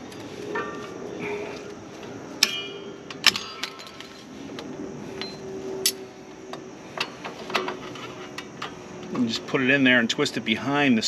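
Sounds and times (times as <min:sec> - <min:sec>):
metal tools clinking: 0:02.4 - 0:04.3.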